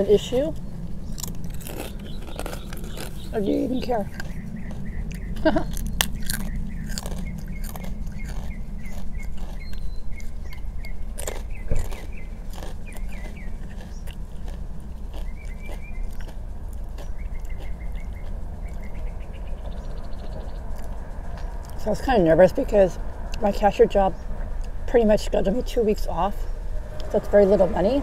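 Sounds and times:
birds chirping faintly: 0.0s - 28.0s
crunching and chewing chips: 0.1s - 22.0s.

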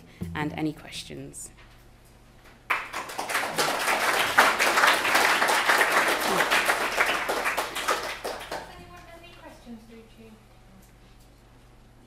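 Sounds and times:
audience applauding: 2.7s - 8.8s.

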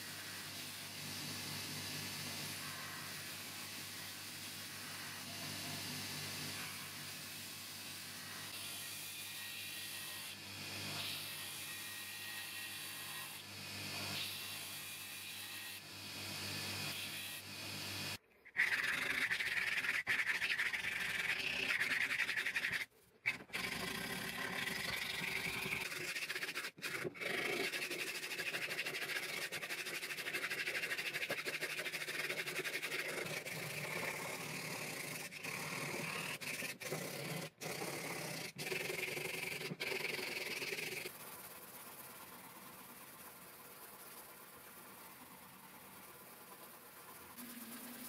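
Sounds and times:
hand sanding scratchy rubbing: 18.6s - 23.7s, 25.3s - 41.2s.

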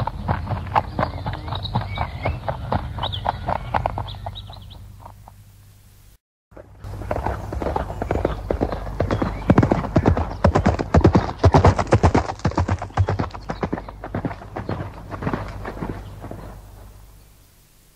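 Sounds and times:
horse hooves galloping: 0.0s - 5.4s, 6.5s - 17.2s.

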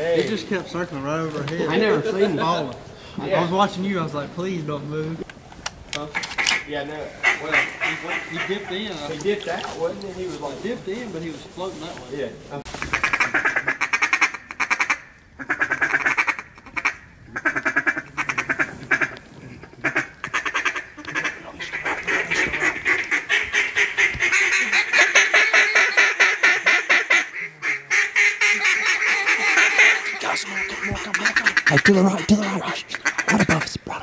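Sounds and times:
duck call quacking: 7.2s - 8.8s, 12.8s - 19.2s, 19.8s - 33.7s.

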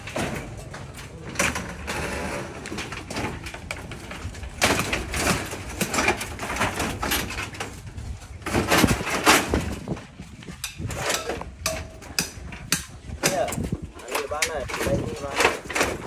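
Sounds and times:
metal sheets and poles clattering: 0.0s - 16.0s.

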